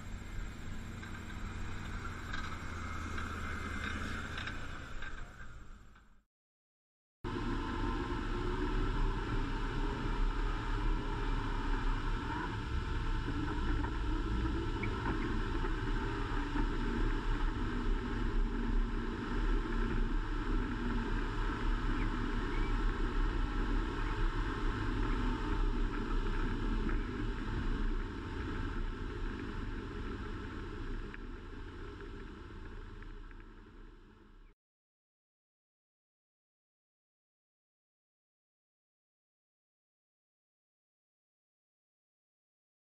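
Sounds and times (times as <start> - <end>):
truck engine rumble: 0.0 - 6.2, 7.3 - 34.5.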